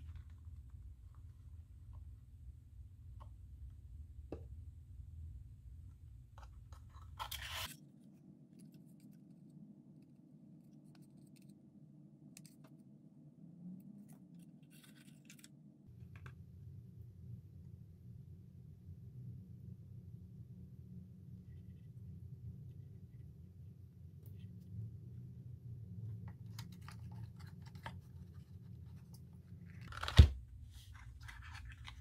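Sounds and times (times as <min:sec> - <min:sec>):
cardboard and paper rustling: 0:06.7 - 0:07.7, 0:26.3 - 0:32.0.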